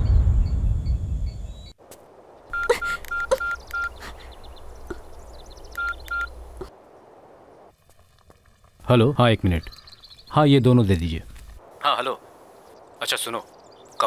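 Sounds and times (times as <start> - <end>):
phone keypad beeps: 2.5 - 3.9, 5.8 - 6.3.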